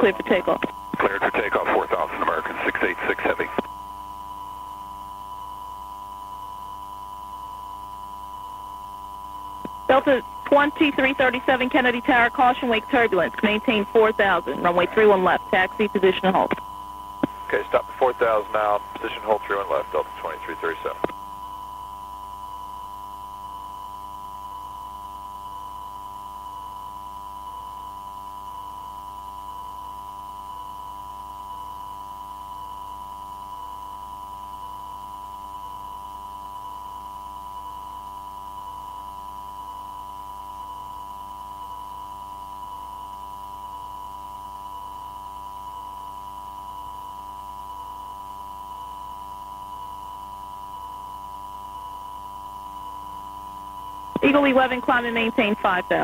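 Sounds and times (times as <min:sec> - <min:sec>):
steady electronic tone: 0:00.0 - 0:02.4
low hum: 0:00.0 - 0:24.0, 0:45.5 - 0:56.0.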